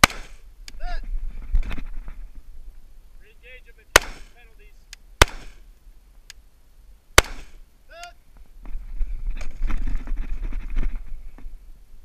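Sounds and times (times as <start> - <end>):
rifle shot: 0.0 - 0.4, 3.9 - 4.4, 5.2 - 5.6, 7.2 - 7.6
wind buffeting microphone: 0.4 - 2.8, 8.4 - 12.0.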